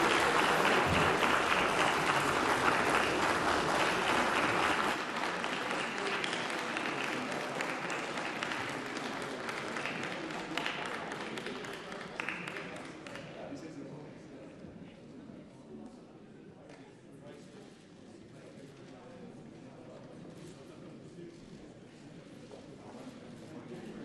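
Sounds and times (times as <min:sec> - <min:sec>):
crowd applauding: 0:00.0 - 0:13.3.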